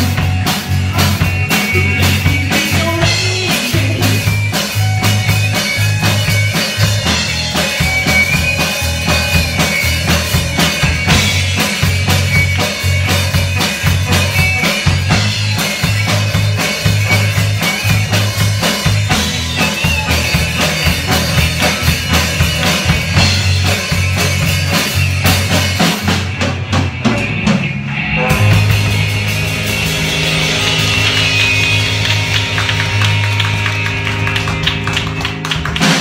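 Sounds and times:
drum kit kick and snare: 0.0s - 27.7s
rock band playing live: 0.0s - 36.0s.

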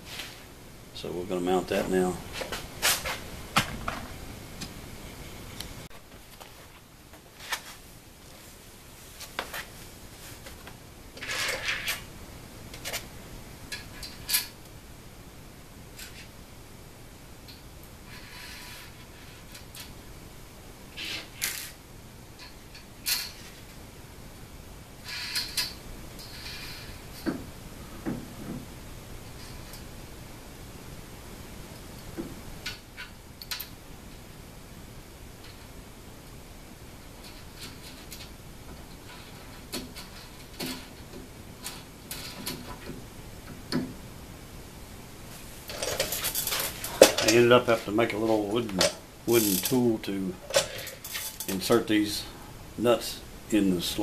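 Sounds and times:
metal parts clicking and scraping: 11.2s - 12.1s, 25.0s - 27.4s, 37.2s - 42.9s, 45.7s - 47.5s, 48.8s - 51.8s
small metallic clicks and knocks: 32.6s - 33.8s.

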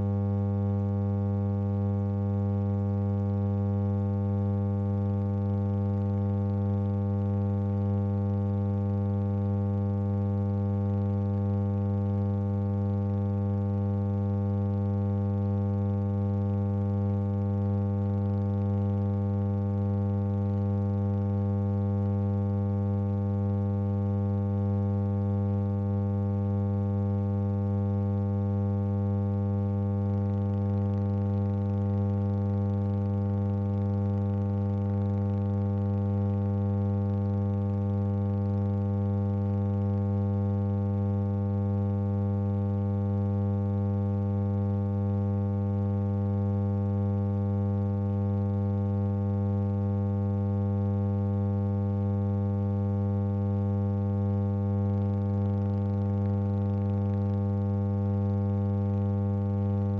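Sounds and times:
steady electrical hum: 0.0s - 40.3s.

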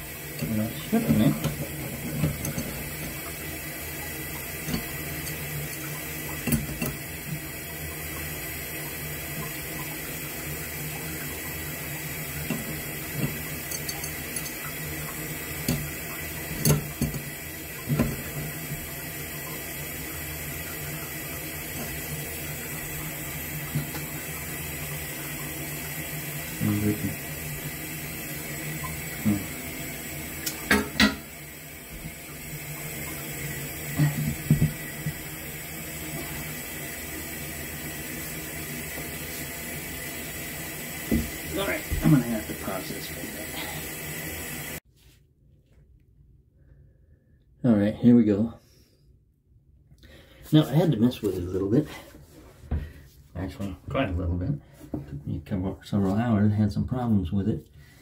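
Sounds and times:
running water hiss: 0.0s - 44.8s.

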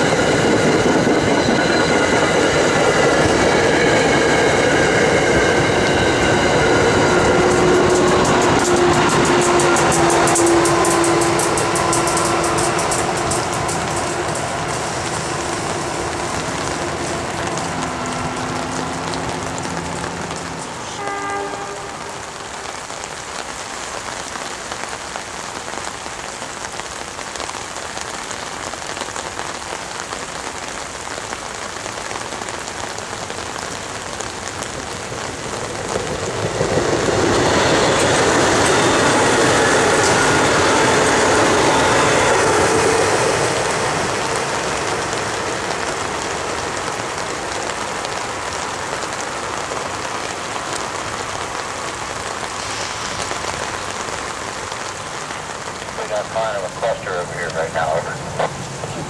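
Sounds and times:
rushing swell: 0.0s - 20.9s, 35.6s - 46.4s, 51.9s - 58.9s
rain pattering on an umbrella: 7.4s - 59.0s.

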